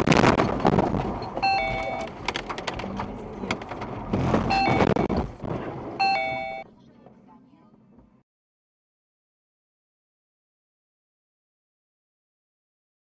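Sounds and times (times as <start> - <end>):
tyres rumbling on wet road: 0.0 - 6.1
electronic warning chime: 1.4 - 2.1, 4.5 - 5.1, 6.0 - 6.6.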